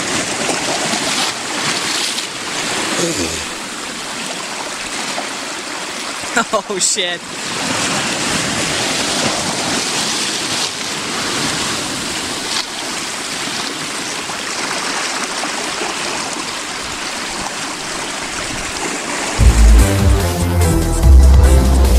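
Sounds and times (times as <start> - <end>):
waves splashing over rocks: 0.0 - 19.4
electronic music: 19.4 - 21.9.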